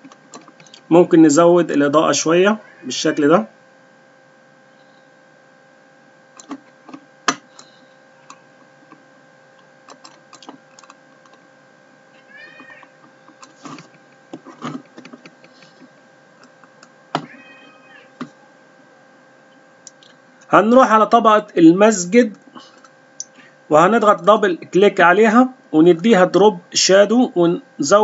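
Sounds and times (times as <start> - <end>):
faint electrical whine: 0.0 - 28.0
short squeaky cries: 2.6 - 3.3, 17.2 - 18.2.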